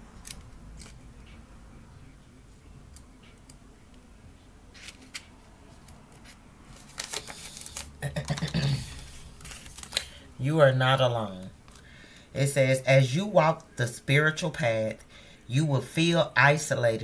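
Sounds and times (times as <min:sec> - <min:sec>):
paper pages rustling: 0:04.7 - 0:10.2.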